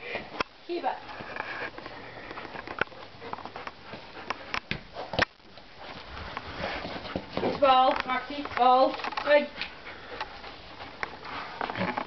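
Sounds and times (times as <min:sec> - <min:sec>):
dogs sniffing and snuffling: 0:00.0 - 0:12.0
light knocks and scuffs: 0:02.4 - 0:09.8.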